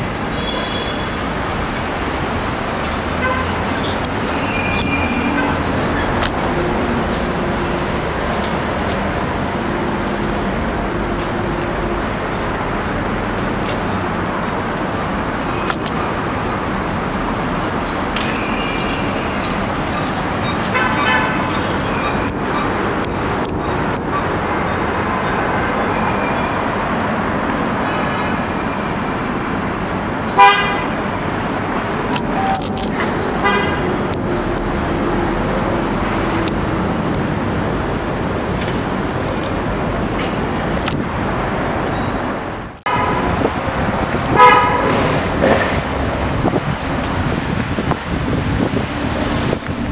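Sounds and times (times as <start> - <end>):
city street traffic: 0.0 - 49.9
loud vehicle horn toot: 0.3 - 1.2, 3.2 - 3.6, 20.6 - 22.9, 30.4 - 31.0, 33.4 - 33.9, 42.9 - 43.4, 44.3 - 45.0.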